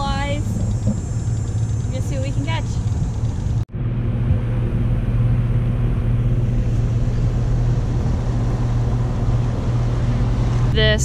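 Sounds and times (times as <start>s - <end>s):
outboard motor droning: 0.0s - 11.0s.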